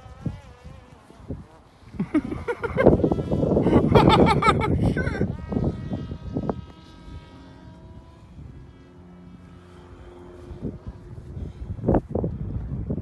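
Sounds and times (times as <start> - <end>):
drone propeller whining: 0.0 - 13.0.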